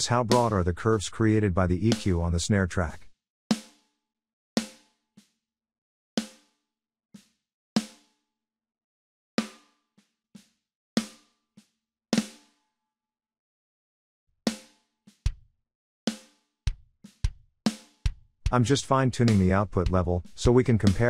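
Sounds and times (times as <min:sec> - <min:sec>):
snare ghost notes: 0:00.0 - 0:00.7, 0:18.6 - 0:21.0.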